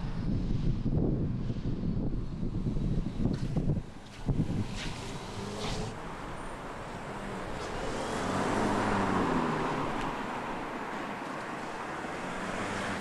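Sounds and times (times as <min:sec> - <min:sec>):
car driving past: 0:04.4 - 0:13.0.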